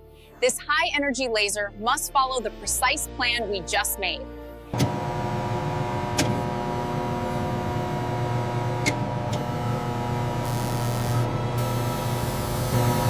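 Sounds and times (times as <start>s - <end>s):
laser cutting machine hum: 4.8s - 13.0s.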